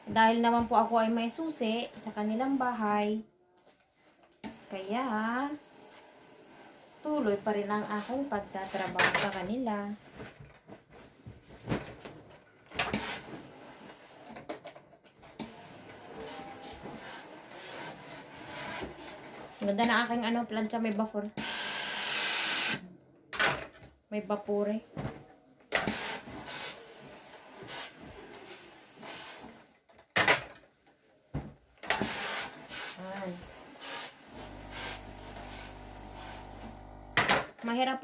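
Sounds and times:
iron rubbing over cloth: 0:04.6 - 0:09.0, 0:15.5 - 0:20.2, 0:25.9 - 0:29.6, 0:32.0 - 0:37.2
bedsheet flapping: 0:09.8 - 0:12.3.

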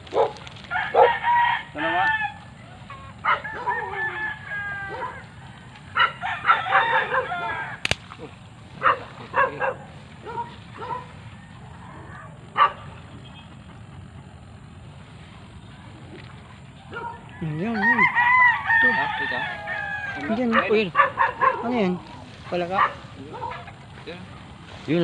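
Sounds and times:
rooster crowing: 0:00.6 - 0:08.0, 0:16.7 - 0:24.9
sharp click: 0:07.8 - 0:08.2.

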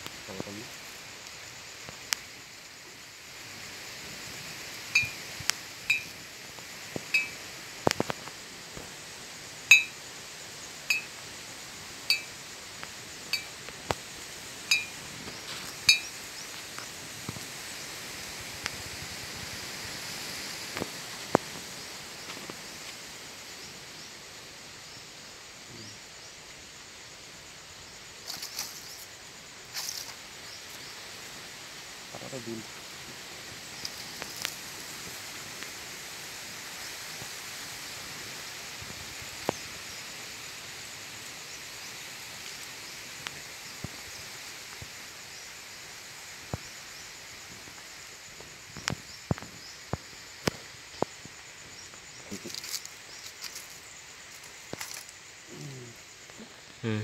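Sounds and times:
glass bottles clinking: 0:05.0 - 0:05.2, 0:05.9 - 0:06.1, 0:07.2 - 0:07.4, 0:09.7 - 0:10.0, 0:10.9 - 0:11.1, 0:12.1 - 0:12.3, 0:14.7 - 0:15.0, 0:15.9 - 0:16.1.

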